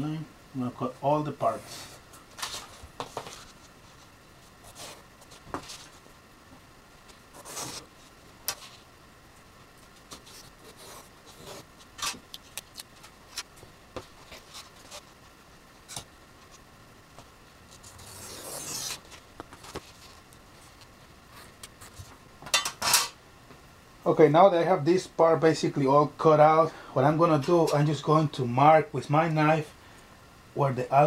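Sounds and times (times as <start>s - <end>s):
knife cutting foam: 17.8s - 19.1s.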